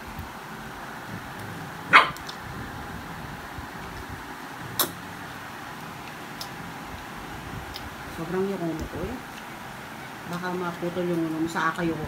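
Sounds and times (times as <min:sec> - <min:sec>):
dog barking: 0:01.9 - 0:02.2.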